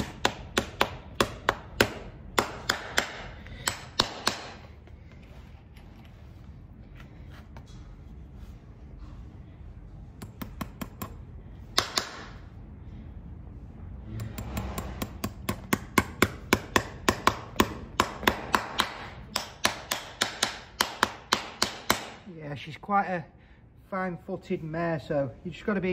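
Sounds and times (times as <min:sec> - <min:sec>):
hammer striking horseshoe nails: 0:00.0 - 0:04.7, 0:10.2 - 0:12.4, 0:14.2 - 0:22.2.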